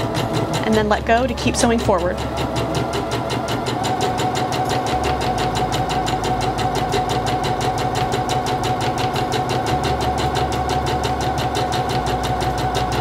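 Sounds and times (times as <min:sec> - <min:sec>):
sewing machine stitching: 0:00.0 - 0:13.0.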